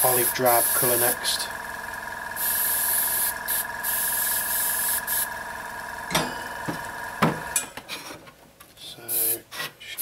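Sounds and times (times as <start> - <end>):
spray paint hissing: 0.0 - 1.2, 2.4 - 5.4, 9.1 - 9.4.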